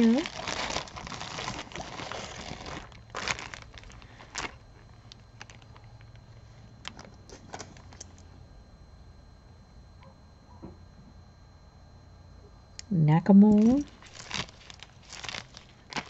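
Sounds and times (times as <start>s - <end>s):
crinkling and rustling: 0.0s - 8.3s, 13.5s - 16.0s.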